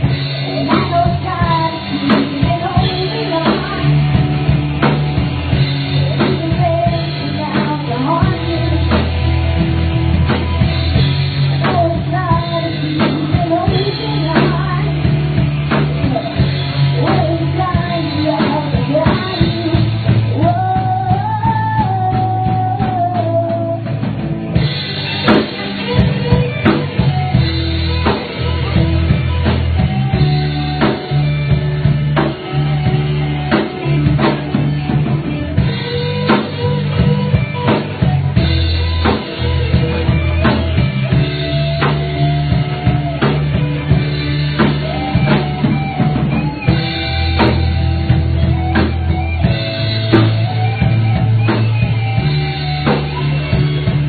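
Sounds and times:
lead singer singing: 0:00.0 - 0:04.5, 0:05.9 - 0:09.4, 0:11.5 - 0:24.0
rock band playing: 0:00.0 - 0:54.0.

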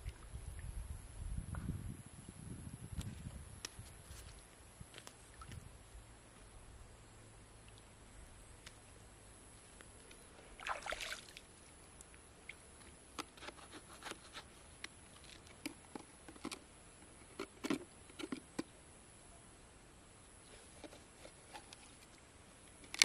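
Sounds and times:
water splash: 0:10.6 - 0:11.4.

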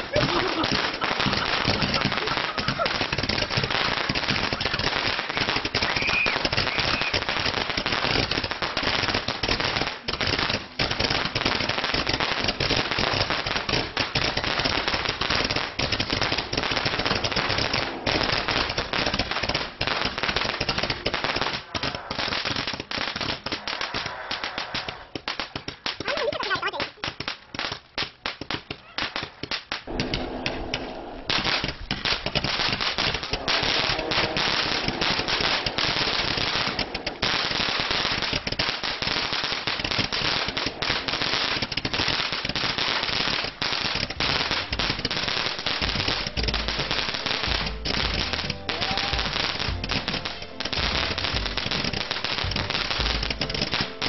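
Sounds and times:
firecrackers popping: 0:00.0 - 0:54.0.

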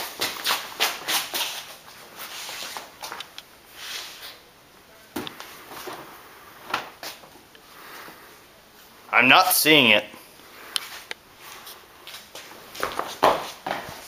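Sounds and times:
footsteps on a hard floor: 0:00.0 - 0:03.3, 0:10.8 - 0:14.0.

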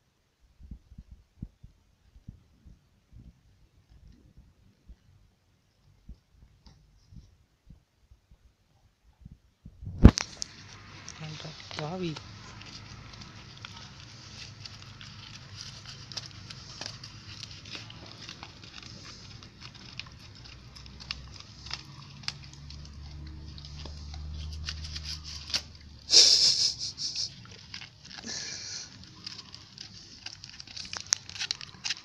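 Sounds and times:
burst of rustling: 0:09.8 - 0:32.0
dog chewing plastic wrapper: 0:10.0 - 0:26.1, 0:27.2 - 0:32.0.

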